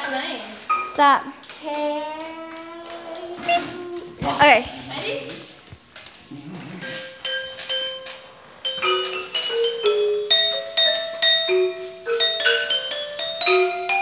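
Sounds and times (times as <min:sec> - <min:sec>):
metallophone tune: 0:00.7 - 0:01.1, 0:06.8 - 0:14.0.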